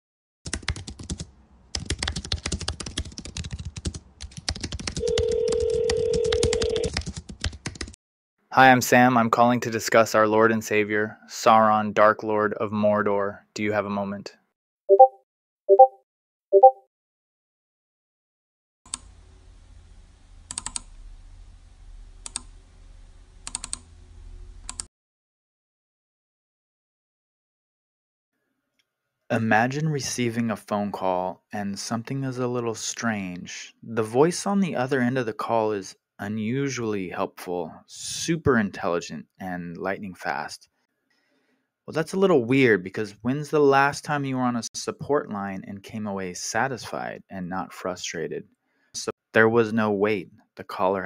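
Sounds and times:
fast keyboard typing: 0.5s - 8.0s, 20.5s - 20.8s, 23.5s - 23.8s, 24.7s - 24.9s.

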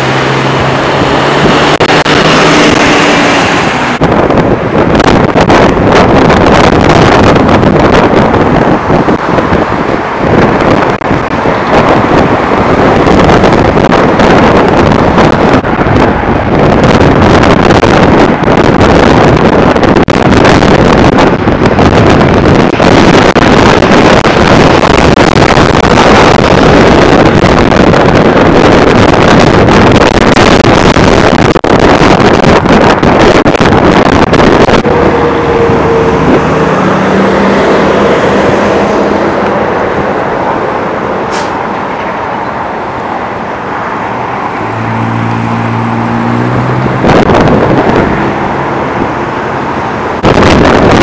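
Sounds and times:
freeway traffic: 0.0s - 51.0s
wind buffeting microphone: 0.0s - 51.0s.

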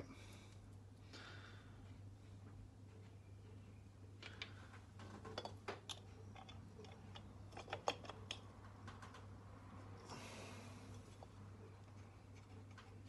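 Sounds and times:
small metal parts clicking: 5.2s - 9.2s.

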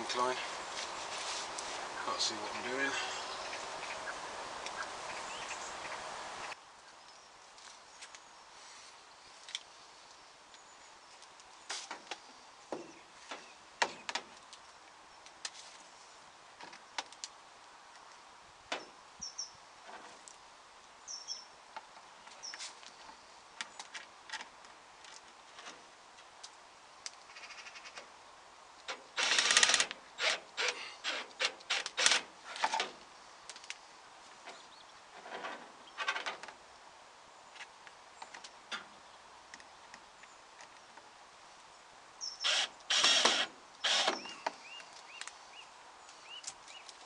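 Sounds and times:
bird chirping: 1.9s - 9.4s, 18.8s - 19.6s, 21.0s - 23.8s, 33.2s - 35.1s, 41.7s - 42.9s, 43.8s - 47.0s
cordless drill driving screws: 29.2s - 32.3s, 42.4s - 44.4s.

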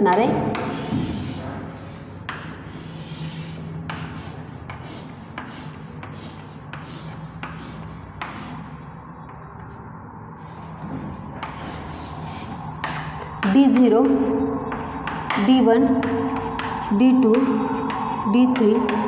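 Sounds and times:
chalk scraping on chalkboard: 0.2s - 9.0s, 10.4s - 13.3s.

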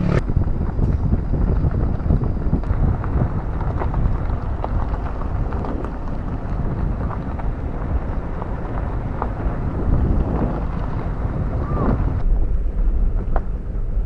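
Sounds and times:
car road noise rumbling: 0.0s - 14.0s.

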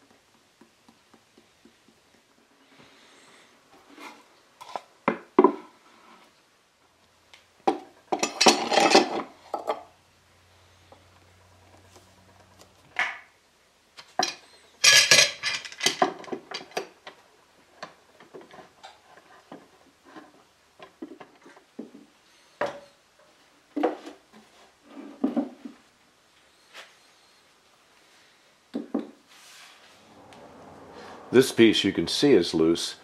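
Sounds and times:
wooden blocks knocking: 0.0s - 2.5s.

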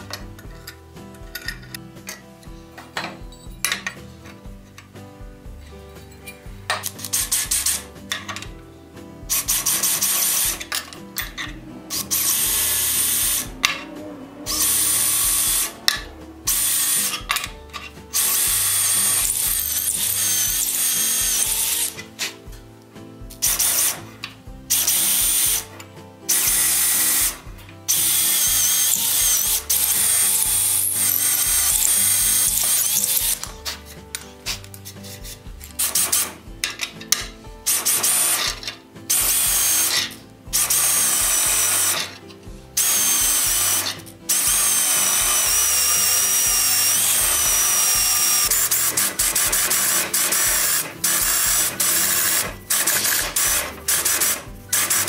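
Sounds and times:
cordless drill boring into wood: 9.3s - 10.7s, 11.3s - 13.6s, 14.5s - 17.3s, 18.1s - 22.0s, 23.4s - 24.0s, 24.7s - 25.7s, 26.3s - 33.5s, 37.7s - 42.2s, 42.8s - 55.0s.

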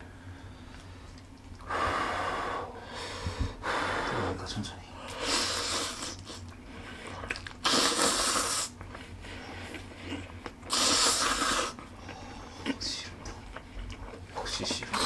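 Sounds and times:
man slurping noodles: 5.2s - 6.4s, 7.3s - 8.8s, 9.7s - 11.8s.

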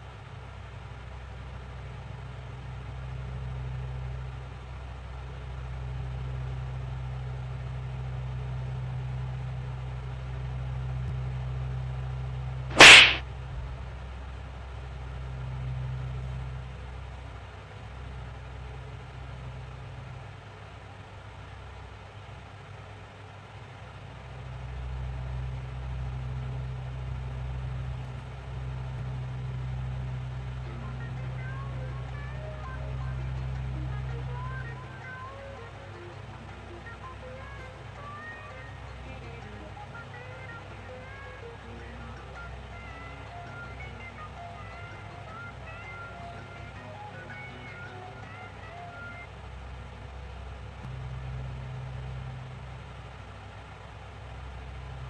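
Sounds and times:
hand slapping skin: 12.7s - 13.2s.

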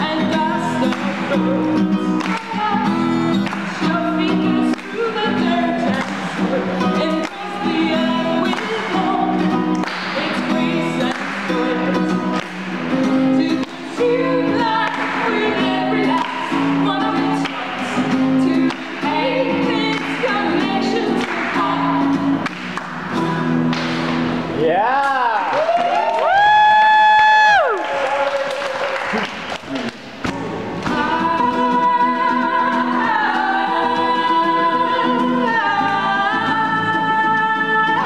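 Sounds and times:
women singing together: 0.0s - 22.4s, 30.8s - 38.0s
acoustic guitar strumming: 0.0s - 25.2s, 30.0s - 38.0s.

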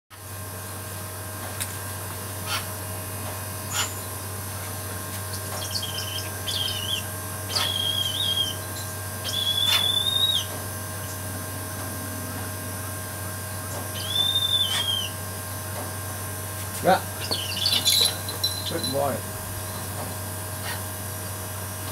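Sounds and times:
steady low hum: 0.1s - 21.9s
bird of prey whistled calls: 5.6s - 10.5s, 14.0s - 15.2s.

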